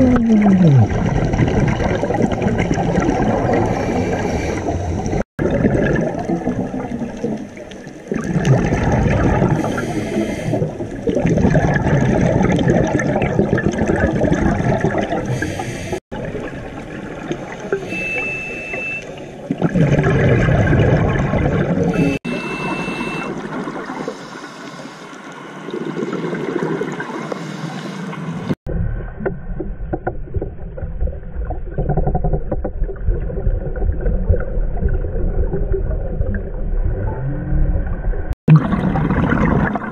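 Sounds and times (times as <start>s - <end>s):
diver exhaled bubbles gurgling: 0.0s - 18.1s, 19.4s - 22.2s, 25.6s - 27.3s, 30.2s - 39.9s
short high beeps: 17.8s - 19.1s, 21.9s - 23.3s.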